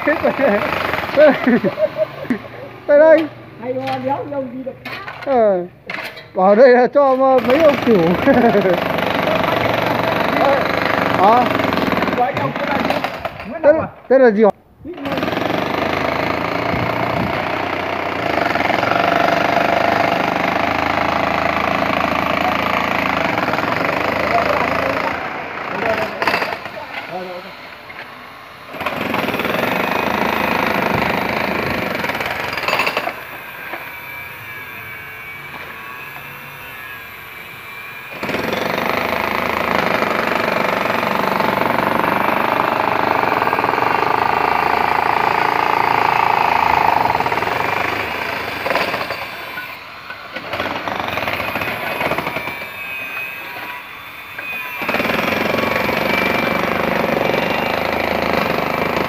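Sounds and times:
jackhammer breaking concrete: 0.0 - 2.0, 7.3 - 13.6, 15.0 - 27.4, 28.7 - 33.8, 38.1 - 53.7, 54.4 - 59.0.

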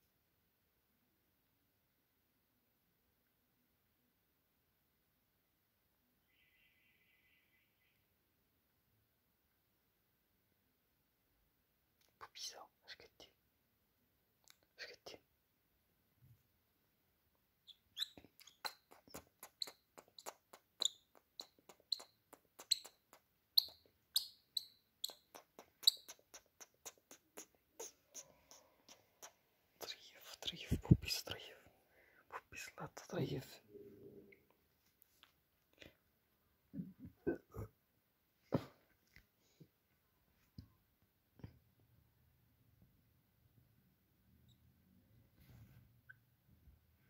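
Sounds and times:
lovebird shrill chirping: 17.6 - 30.0.

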